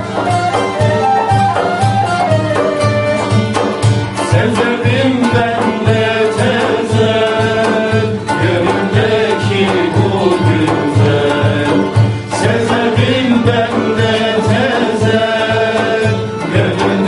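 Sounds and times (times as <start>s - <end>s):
flute: 0.0s - 4.3s
frame drums beating: 0.0s - 17.0s
plucked string instruments: 0.0s - 17.0s
man singing: 4.2s - 17.0s.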